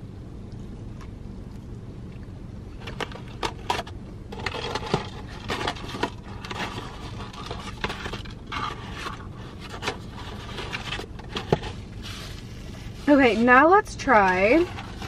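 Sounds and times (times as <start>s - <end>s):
cardboard and paper rustling: 2.8s - 15.0s.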